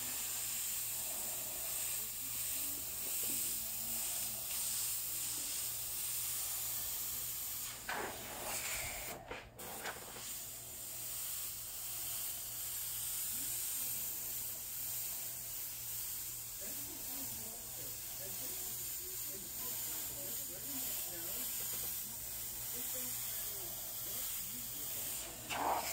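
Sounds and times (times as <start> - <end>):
airbrush hissing: 0.0 - 25.9.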